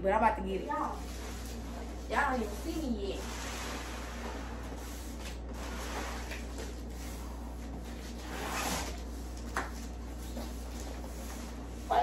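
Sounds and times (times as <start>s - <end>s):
steady low hum: 0.0s - 12.0s
cardboard box scraping on floor: 1.0s - 7.4s, 8.0s - 9.1s.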